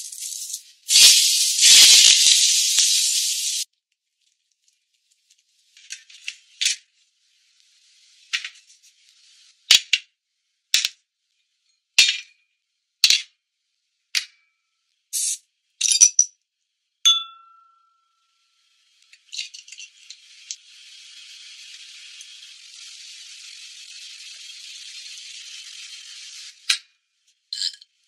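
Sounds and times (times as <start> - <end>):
beer foam fizzing: 0.0 - 3.6
sharp glass clinks: 15.8 - 16.3, 17.1 - 18.0, 27.6 - 27.8
clink with ringing tone: 17.1 - 18.1.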